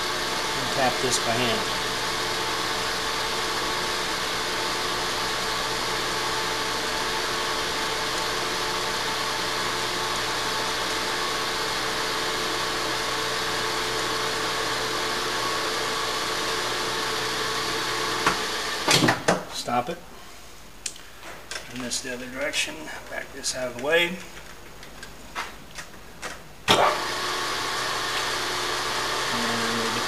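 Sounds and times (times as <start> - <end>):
metal lathe motor hum: 0.0 - 18.9.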